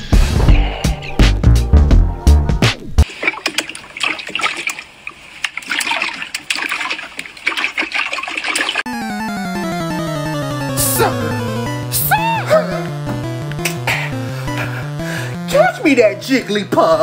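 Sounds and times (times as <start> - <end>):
water splashing and squelching: 3.0 - 8.9
music beat: 8.9 - 15.5
tune with falling notes: 8.9 - 15.5.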